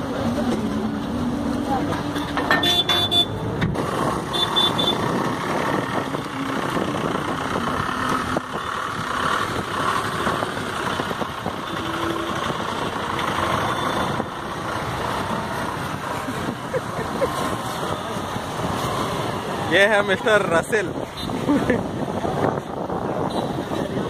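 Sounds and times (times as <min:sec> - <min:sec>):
ferry engine hum: 0:00.0 - 0:20.3
cars and motorcycles idling: 0:00.0 - 0:24.0.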